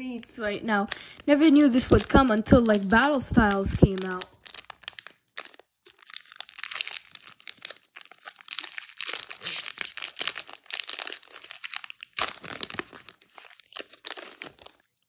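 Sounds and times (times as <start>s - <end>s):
foil wrapper crinkling and tearing: 0.7s - 15.0s.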